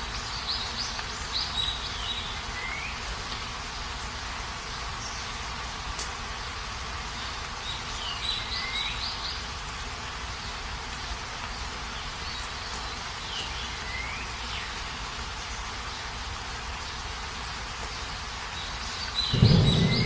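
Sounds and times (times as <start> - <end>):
outdoor nature hiss: 0.0 - 20.0
bird chirping: 18.6 - 20.0.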